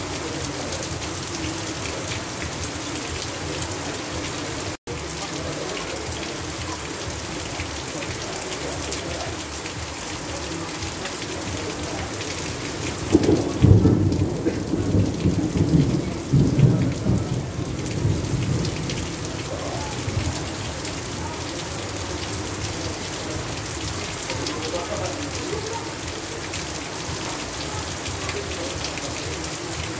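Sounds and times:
heavy rain: 0:00.0 - 0:29.9
thunder rumbling: 0:12.8 - 0:20.7.

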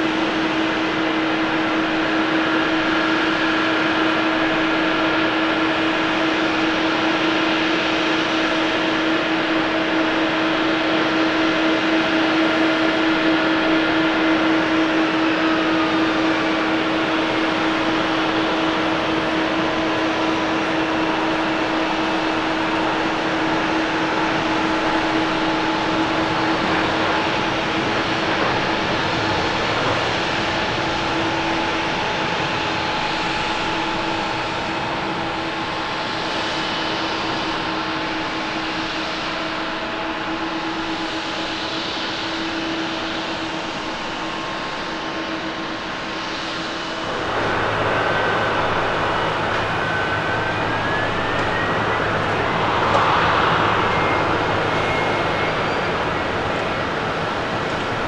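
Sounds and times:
jet engine roar: 0:00.0 - 0:58.0
whine falling in pitch: 0:45.0 - 0:58.0.

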